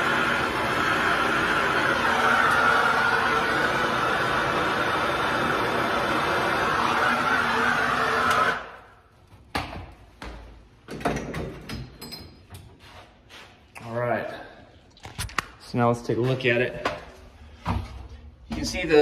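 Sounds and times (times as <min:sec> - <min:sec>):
gas torch hissing: 0:00.0 - 0:08.8.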